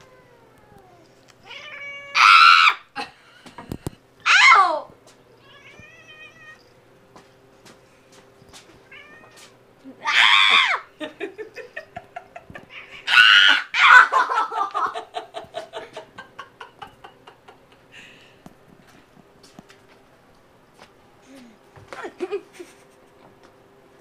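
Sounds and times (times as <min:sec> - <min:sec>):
cat meowing: 0:00.0 - 0:02.8, 0:05.4 - 0:06.6, 0:08.9 - 0:10.8
cat yowling: 0:00.0 - 0:02.9, 0:04.2 - 0:06.7, 0:08.9 - 0:10.9, 0:12.6 - 0:14.1.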